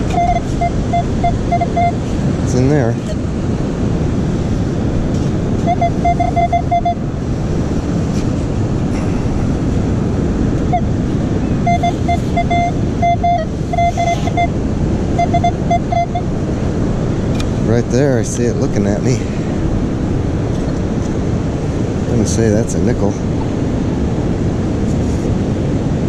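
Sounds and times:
metal detector short beeps: 0.0s - 2.0s, 5.6s - 7.0s, 11.6s - 14.6s, 15.2s - 16.3s
surf: 0.0s - 26.0s.

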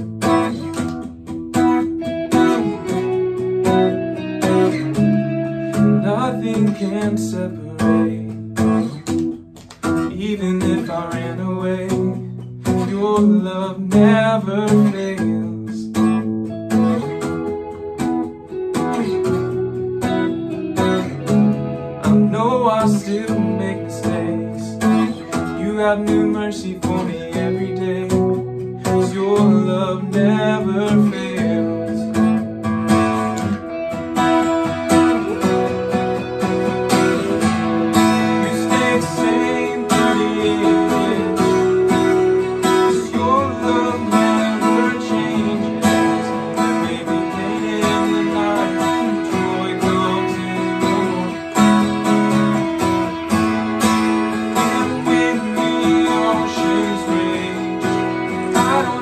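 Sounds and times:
electric guitar playing: 0.0s - 59.0s
strummed acoustic guitar: 0.0s - 59.0s
man singing: 5.6s - 8.6s, 10.0s - 16.2s, 22.0s - 32.6s, 34.8s - 53.3s, 54.3s - 59.0s.

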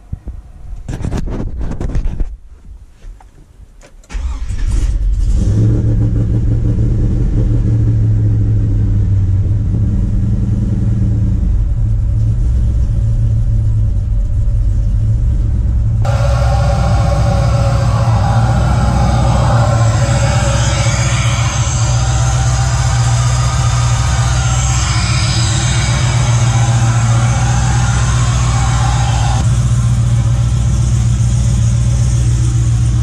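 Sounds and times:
engine cranking on starter: 4.0s - 6.0s
engine revving: 4.1s - 13.4s, 15.1s - 33.0s
engine idling: 4.1s - 33.0s.

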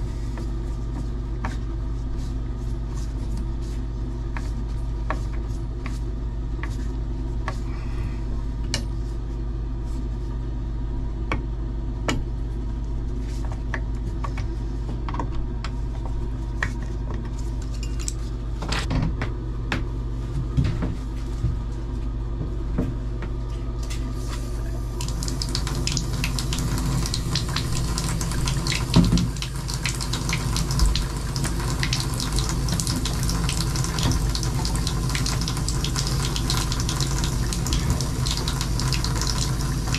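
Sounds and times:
steady low hum: 0.0s - 39.9s
water splashing into bathtub: 25.0s - 39.9s.

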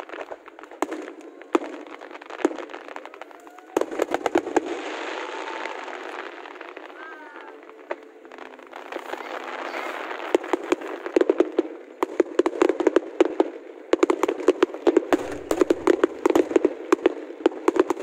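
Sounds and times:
fireworks bangs and crackles: 0.0s - 18.0s
fireworks hissing: 0.0s - 18.0s.

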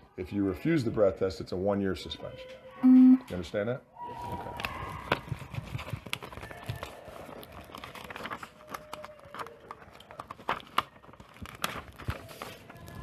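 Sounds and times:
paper rustling: 4.1s - 13.0s.

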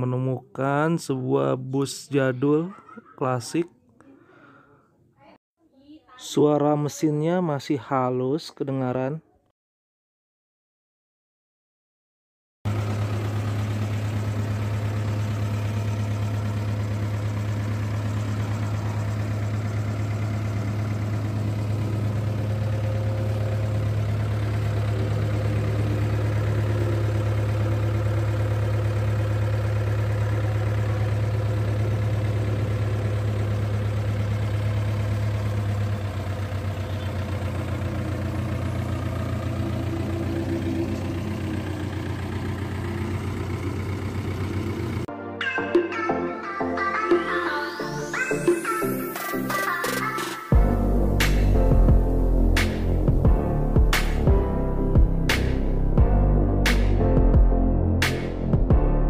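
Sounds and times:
bus engine idling: 12.7s - 45.1s, 49.1s - 57.0s.

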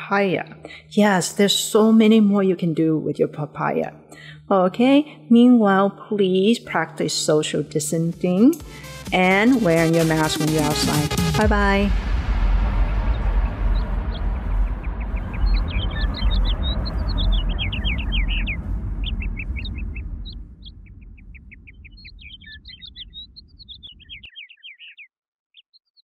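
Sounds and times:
bass-heavy electronic music: 8.3s - 20.6s
small birds chirping: 12.9s - 26.0s.

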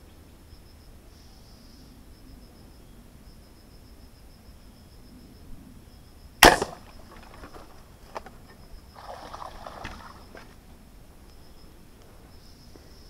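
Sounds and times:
speargun firing snap: 6.4s - 6.9s
splashing water: 9.0s - 10.6s.

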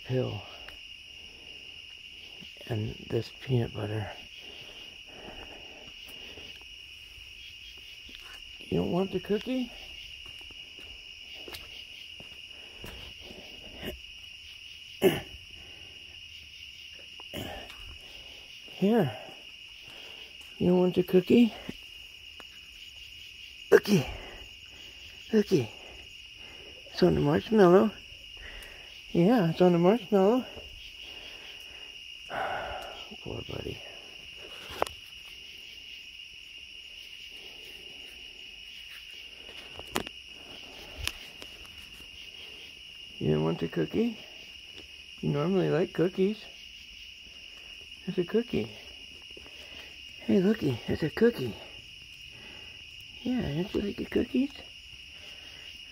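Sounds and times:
crickets chirping: 0.0s - 55.9s.

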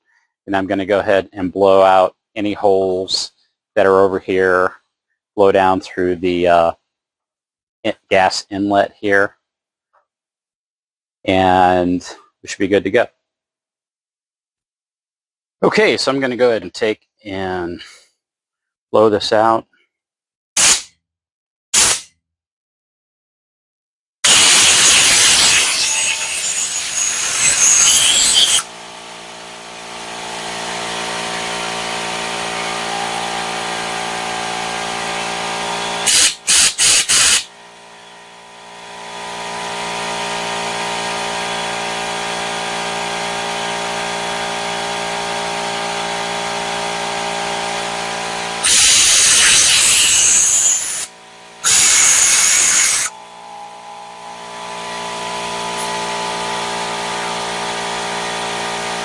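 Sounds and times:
air blow gun hissing blasts: 24.3s - 40.4s, 47.8s - 57.8s
air compressor humming: 24.3s - 59.0s.

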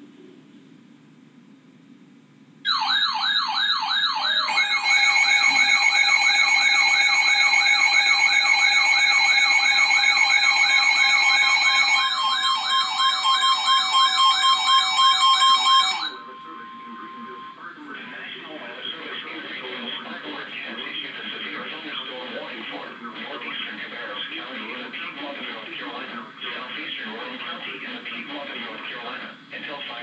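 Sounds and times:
faint radio hiss: 0.0s - 2.6s, 16.1s - 30.0s
warbling electronic siren tone: 2.7s - 17.7s
steady warning tone: 2.7s - 25.8s.

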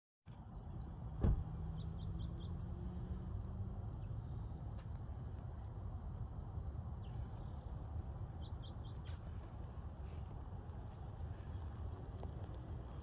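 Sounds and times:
bird chirping: 0.4s - 2.8s, 7.0s - 9.2s
wind rumbling on microphone: 0.4s - 13.0s
thump: 1.2s - 1.5s.

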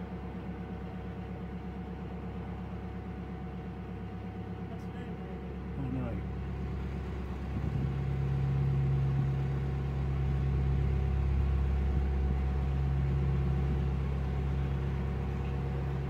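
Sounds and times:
diesel engine humming: 0.0s - 16.0s.

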